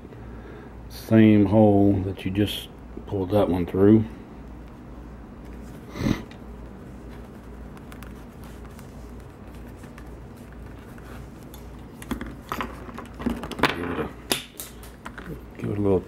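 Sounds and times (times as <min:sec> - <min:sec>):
low room hum: 0:00.0 - 0:16.0
needle and thread through leather: 0:06.6 - 0:12.5.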